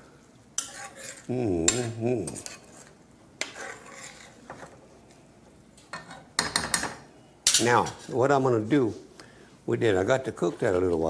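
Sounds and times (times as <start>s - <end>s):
spoon stirring wet mix: 0.6s - 4.6s
man talking: 9.7s - 11.0s.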